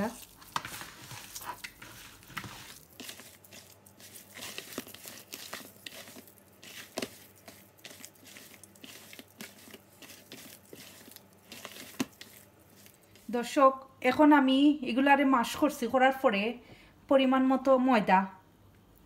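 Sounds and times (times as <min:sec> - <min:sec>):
hand squelching mashed potato: 0:00.0 - 0:13.6.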